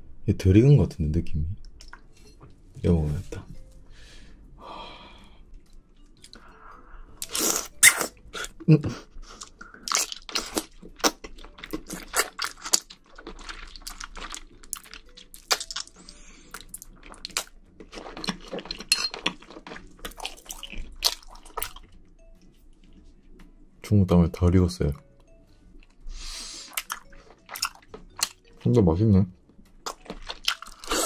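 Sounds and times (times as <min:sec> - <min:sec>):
wet chewing with smacks: 0:09.3 - 0:21.9, 0:26.7 - 0:28.5, 0:29.8 - 0:31.0.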